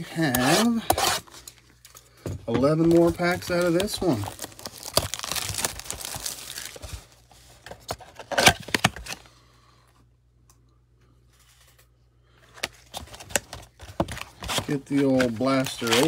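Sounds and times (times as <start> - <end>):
cardboard box tearing open: 3.0 - 6.8
loud tearing crackle: 3.7 - 6.8.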